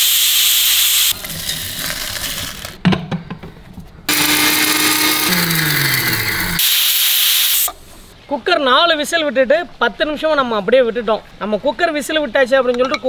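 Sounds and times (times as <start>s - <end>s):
electric grinder grinding spices: 0.0s - 2.8s, 4.1s - 7.3s.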